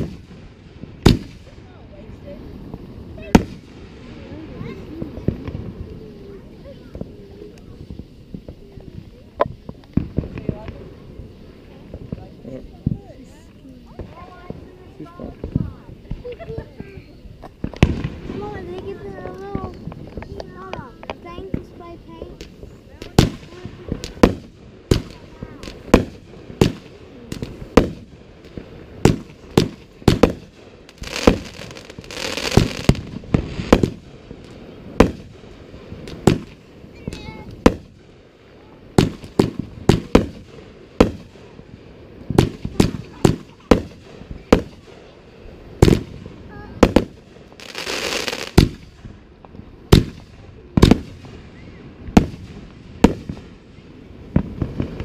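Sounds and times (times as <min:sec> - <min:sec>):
fireworks bangs and pops: 0:00.0 - 0:55.0
fireworks crackling hiss: 0:00.0 - 0:55.0.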